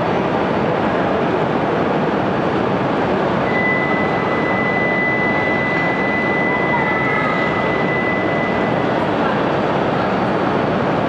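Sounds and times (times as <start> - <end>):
loud train rushing noise: 0.0 - 11.0
high-pitched tone: 3.4 - 9.6.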